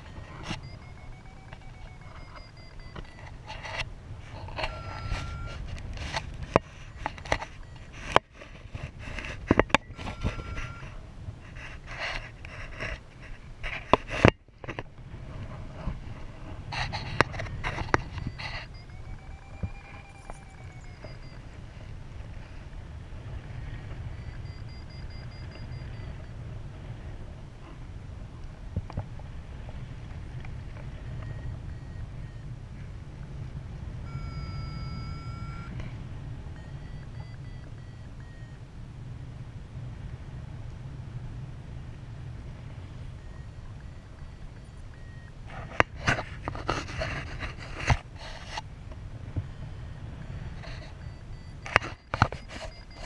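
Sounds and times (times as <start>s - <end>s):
variometer beeping: 0.0s - 8.4s, 9.2s - 11.0s, 16.8s - 22.0s, 23.4s - 26.5s, 30.9s - 32.5s, 34.0s - 35.8s, 36.5s - 38.6s, 42.8s - 46.5s, 49.3s - 53.0s
wind rushing on microphone: 2.3s - 34.1s.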